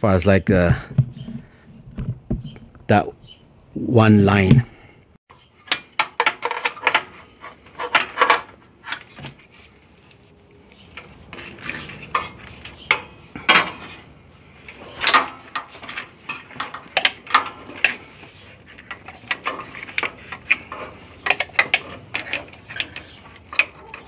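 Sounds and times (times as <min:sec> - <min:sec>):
hose rustling scrapes: 0:06.4 - 0:24.0
metal fittings clinking: 0:14.7 - 0:24.0.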